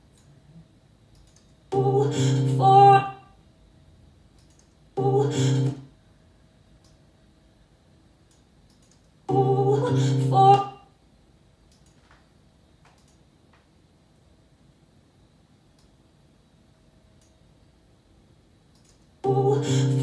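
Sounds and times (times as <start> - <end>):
recorded song snippets: 9.3 - 10.8.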